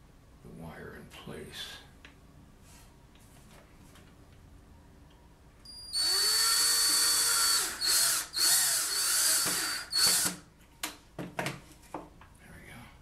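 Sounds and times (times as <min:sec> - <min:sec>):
cordless drill driving screw: 0:05.9 - 0:10.4.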